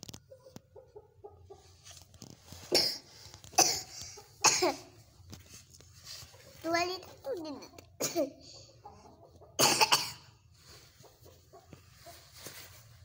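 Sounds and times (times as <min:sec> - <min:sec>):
chickens clucking softly: 0:00.0 - 0:09.6, 0:10.2 - 0:13.0
harsh cough-like chicken calls: 0:02.6 - 0:05.0, 0:08.0 - 0:08.8, 0:09.6 - 0:10.5.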